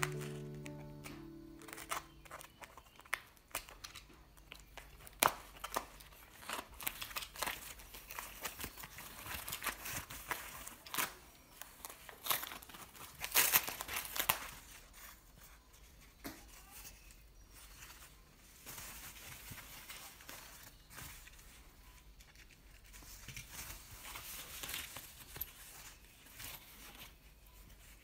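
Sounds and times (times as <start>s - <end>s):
foam wrap crinkling and tearing: 0.0s - 15.9s.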